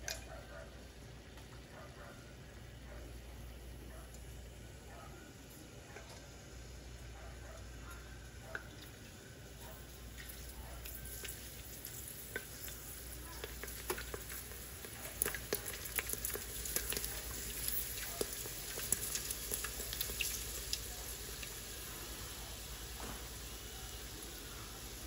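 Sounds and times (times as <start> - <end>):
oil sizzling: 5.4 - 25.0
crackling pops in frying oil: 10.1 - 21.8, 22.9 - 24.3.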